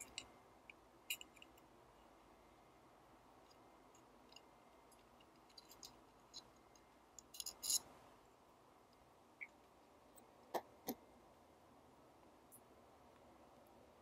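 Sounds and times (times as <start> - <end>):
small metal clicks and scrapes: 0.0 - 1.7, 3.4 - 7.9.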